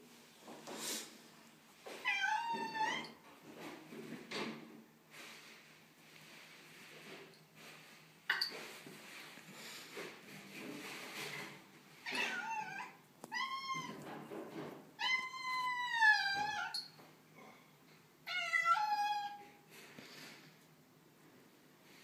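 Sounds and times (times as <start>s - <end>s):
cat meowing: 2.0s - 3.2s, 12.0s - 14.0s, 15.0s - 16.8s.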